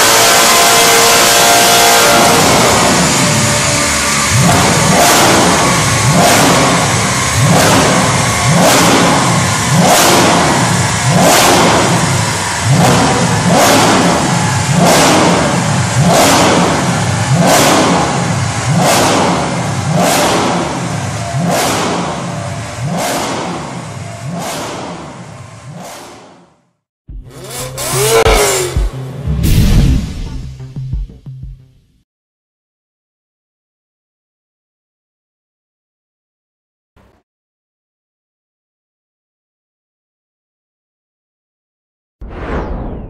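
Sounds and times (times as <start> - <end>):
car engine revving: 0.0 - 30.7.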